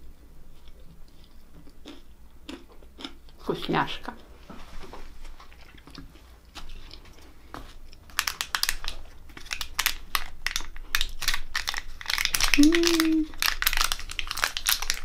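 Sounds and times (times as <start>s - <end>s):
person chewing: 0.5s - 3.4s, 5.4s - 15.0s
foil lid crinkling: 8.1s - 15.0s.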